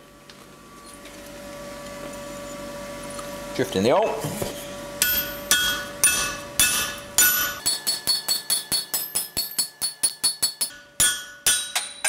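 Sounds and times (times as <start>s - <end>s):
hammer striking metal: 5.0s - 12.0s.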